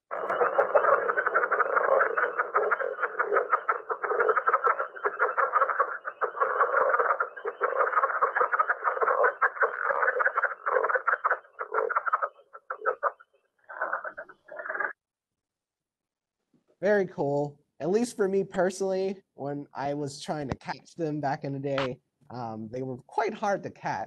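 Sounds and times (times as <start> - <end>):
frogs croaking: 0.0 - 15.0.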